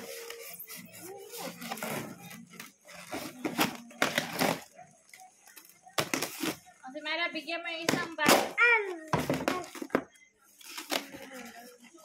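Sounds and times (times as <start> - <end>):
plastic wrapping crinkling: 0.0 - 6.8, 8.9 - 12.0.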